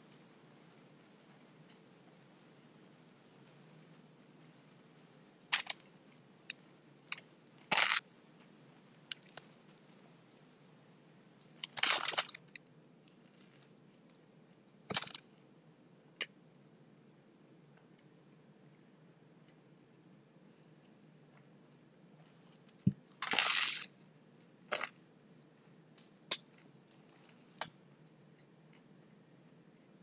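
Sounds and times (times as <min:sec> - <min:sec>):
faint room hum: 0:00.0 - 0:30.0
sandwich wrapper crackling: 0:23.2 - 0:23.9.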